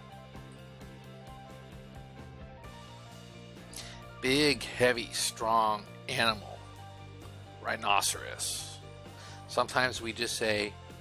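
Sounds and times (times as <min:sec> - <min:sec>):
soft instrumental background music: 0:00.0 - 0:11.0.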